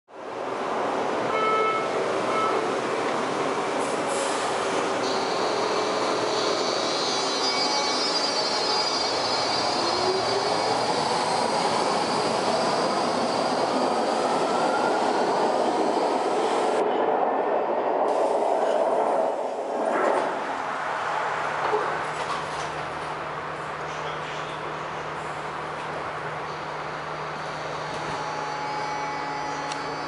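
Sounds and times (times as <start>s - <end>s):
subway train on rails: 0.1s - 30.0s
high-pitched squeal: 5.0s - 16.8s.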